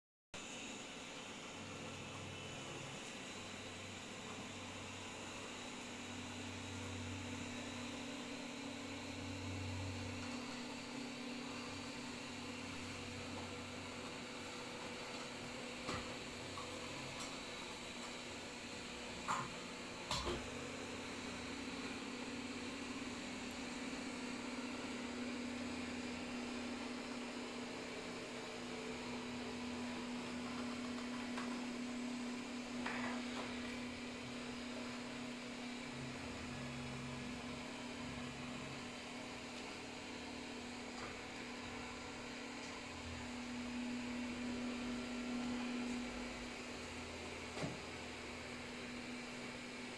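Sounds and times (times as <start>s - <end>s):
robot vacuum humming: 21.2s - 47.8s.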